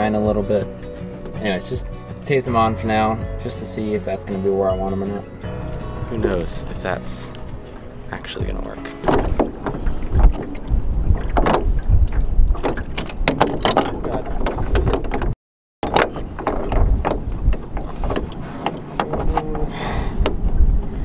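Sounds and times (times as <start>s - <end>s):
oars knocking and creaking: 0.0s - 21.0s
wind buffeting microphone: 5.6s - 21.0s.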